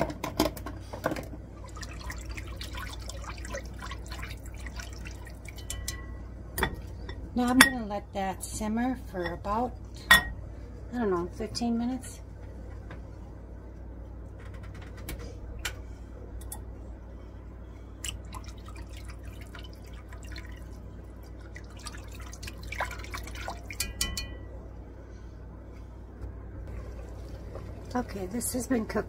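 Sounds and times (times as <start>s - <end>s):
steady low hum: 0.0s - 29.0s
whisk sloshing soup: 1.6s - 5.9s, 18.1s - 24.1s.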